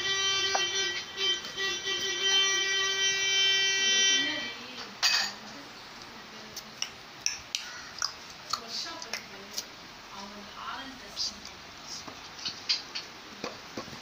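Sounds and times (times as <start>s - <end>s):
steady buzzing tone: 0.0s - 4.8s.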